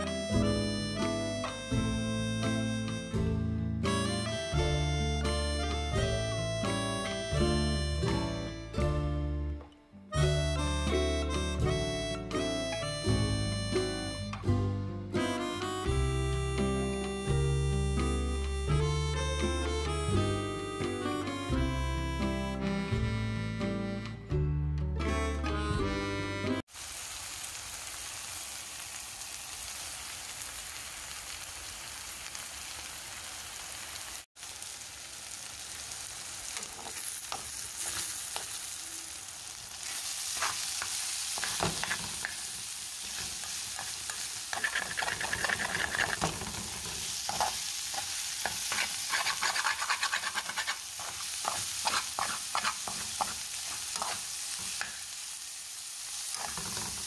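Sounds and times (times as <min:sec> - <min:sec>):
fish and onion sizzling: 0:26.6 - 0:57.0
metal spatula scraping pan: 0:39.8 - 0:54.9, 0:56.3 - 0:57.0.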